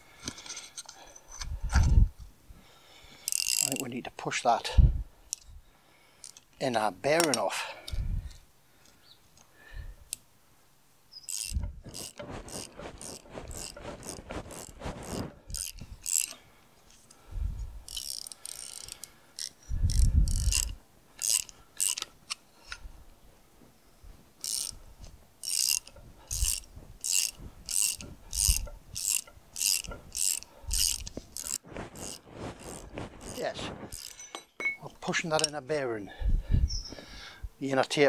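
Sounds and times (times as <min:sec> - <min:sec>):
socket ratchet clicking: 0:03.2 - 0:03.8, 0:11.2 - 0:14.6, 0:17.8 - 0:22.8, 0:24.4 - 0:24.8, 0:25.4 - 0:34.2.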